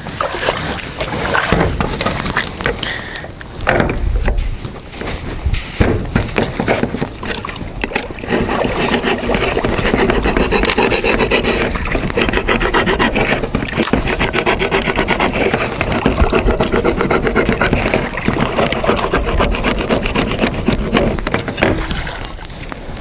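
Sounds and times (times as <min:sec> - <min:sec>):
tool rasping through material: 0:08.2 - 0:21.9.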